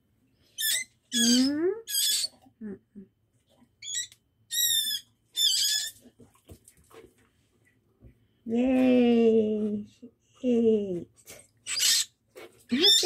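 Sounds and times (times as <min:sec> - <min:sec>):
baby bird chirping: 0:00.5 - 0:02.4, 0:03.8 - 0:06.0, 0:11.6 - 0:12.1, 0:12.7 - 0:13.0.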